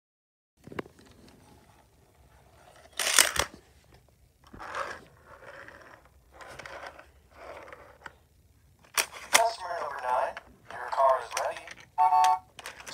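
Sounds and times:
toy car scraping on plastic: 4.5 - 8.1.

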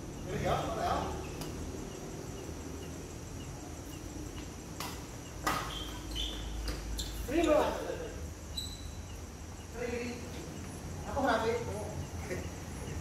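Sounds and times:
rackets striking shuttlecock: 4.3 - 7.3.

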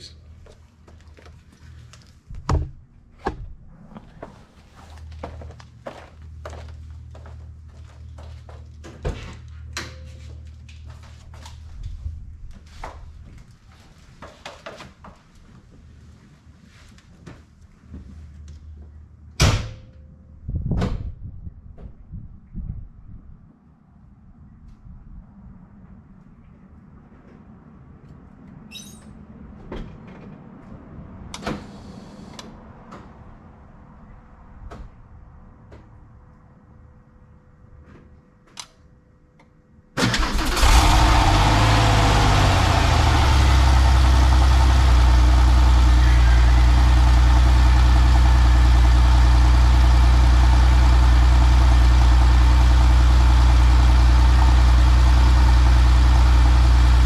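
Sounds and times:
car engine starting and idling: 40.0 - 57.0.

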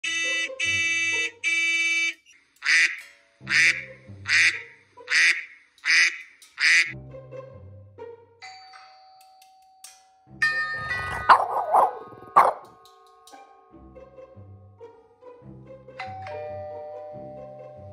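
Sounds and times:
long buzzy tones: 0.0 - 2.2
duck quacks: 2.6 - 7.0, 11.1 - 12.6
background music: 2.6 - 17.9.

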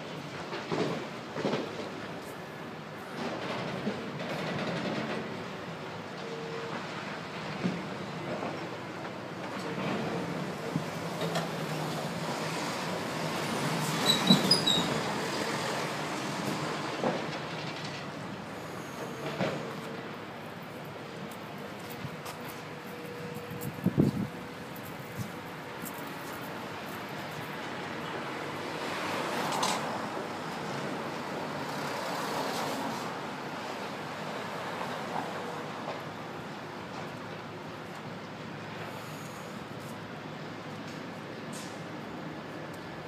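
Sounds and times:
street traffic: 0.0 - 43.0
short high squeaks: 14.0 - 15.1.

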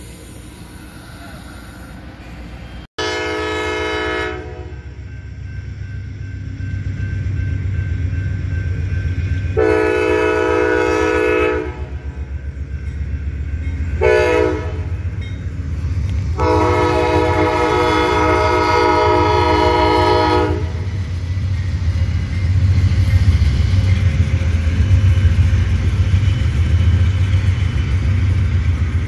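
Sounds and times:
locomotive engine rumble: 0.0 - 29.0
train horn blasts: 3.0 - 5.0, 9.6 - 12.1, 14.0 - 15.0, 16.4 - 20.9.

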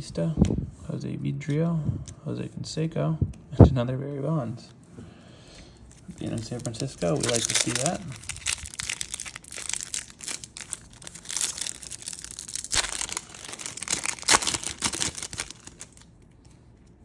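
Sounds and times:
foil wrapper tearing and crinkling: 5.9 - 16.1.

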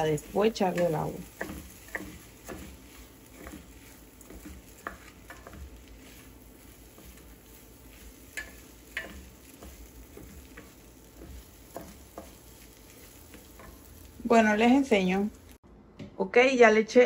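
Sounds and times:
utensil clicking against pot: 0.0 - 5.9, 8.3 - 12.4
rice sizzling in a pot: 0.0 - 15.6.

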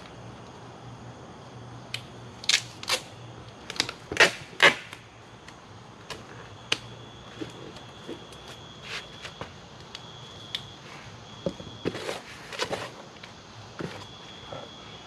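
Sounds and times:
faint steady high tone: 13.8 - 15.0.

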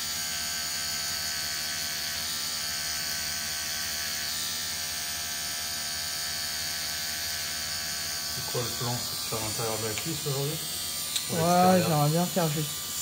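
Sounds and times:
tattoo machine humming: 0.0 - 13.0.

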